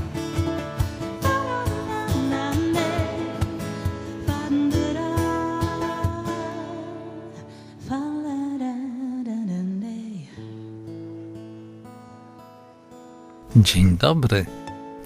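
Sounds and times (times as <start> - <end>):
strummed acoustic guitar: 0.0 - 8.0, 10.4 - 13.6.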